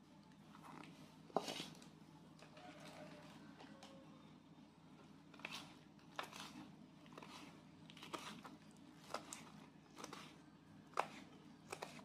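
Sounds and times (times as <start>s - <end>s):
knife chopping on wooden board: 10.9s - 12.0s.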